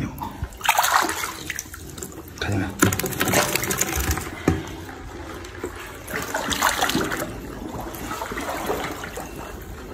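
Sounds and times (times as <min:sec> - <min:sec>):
pond water splashing: 0:00.5 - 0:02.1.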